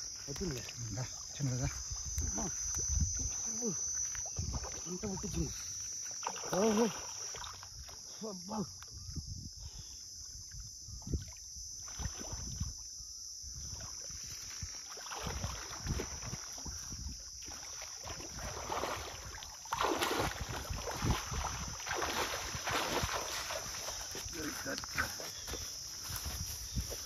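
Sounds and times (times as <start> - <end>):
water splashing from wading: 4.3 - 8.1, 14.7 - 16.8, 17.4 - 24.3
fish thrashing in water: 17.5 - 23.9.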